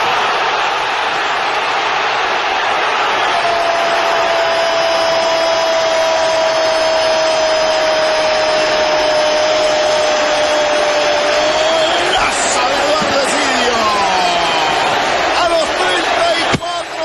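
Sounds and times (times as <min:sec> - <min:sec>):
stadium crowd roaring: 0:00.0 - 0:17.0.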